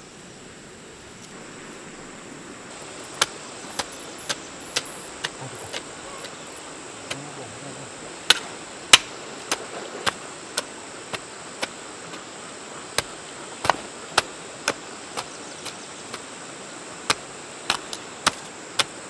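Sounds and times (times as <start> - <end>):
high insect buzz: 0.0 - 19.0
hoe chopping into soil: 3.1 - 6.4, 13.0 - 16.3, 17.1 - 19.0.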